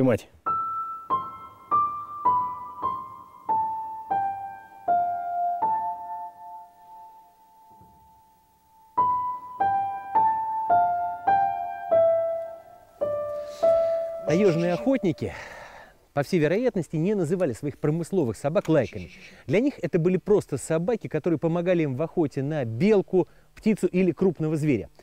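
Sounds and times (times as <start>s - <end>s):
slow piano melody: 0.4s - 15.8s.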